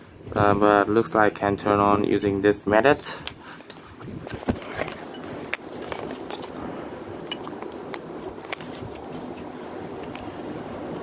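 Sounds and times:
steady background hum: 0.0s - 11.0s
phone handling clicks and rubs: 3.7s - 10.3s.

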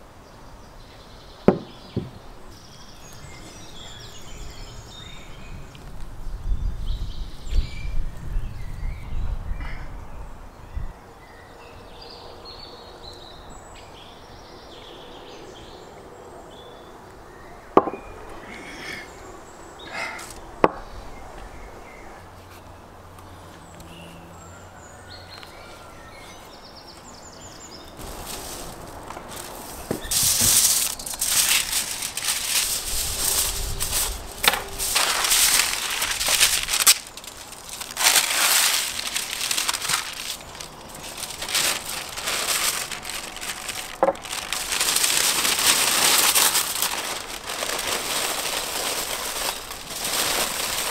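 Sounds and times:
outdoor ambience: 0.0s - 50.9s
paper and foil crinkling: 28.0s - 50.9s.

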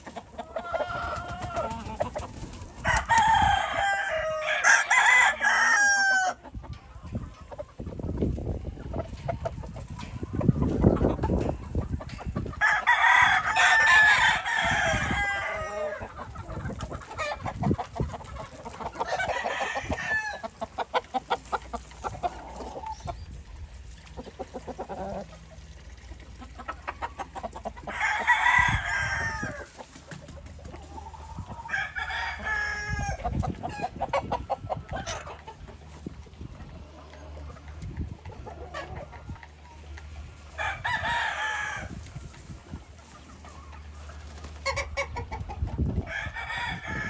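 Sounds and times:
clucking: 0.0s - 3.4s, 6.3s - 12.9s, 14.6s - 23.3s, 24.0s - 28.8s, 29.4s - 31.7s, 33.0s - 40.4s, 42.2s - 46.0s
roosters crowing: 0.0s - 6.4s, 12.4s - 23.1s, 27.0s - 29.8s, 30.9s - 35.5s, 40.2s - 42.5s, 46.0s - 47.0s.

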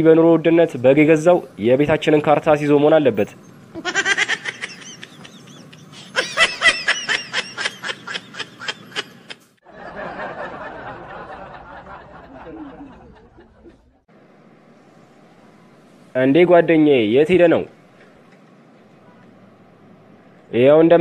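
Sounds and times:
cartoon character laughing: 3.8s - 9.5s.

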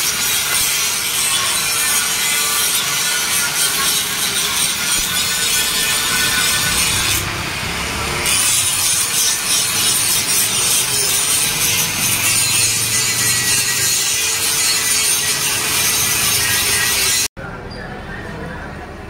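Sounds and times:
angle grinder grinding metal: 0.0s - 17.3s.

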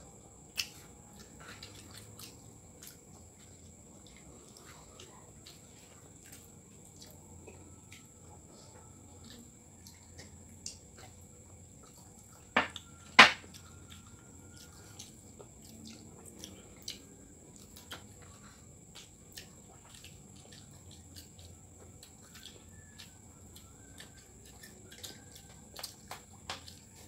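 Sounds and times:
wet chewing clicks and smacks: 0.2s - 27.0s
sharp knocks: 12.6s - 13.4s.

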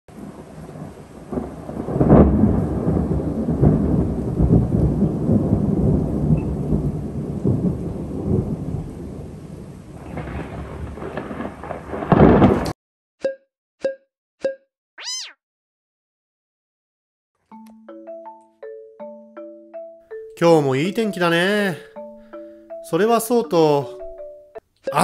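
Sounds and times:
steady rain: 0.1s - 12.8s
thunder rolling: 0.1s - 12.8s.

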